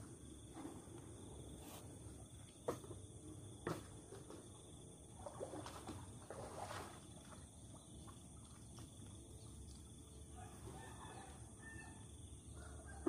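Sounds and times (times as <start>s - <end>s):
distant rooster crowing: 10.3s - 13.0s.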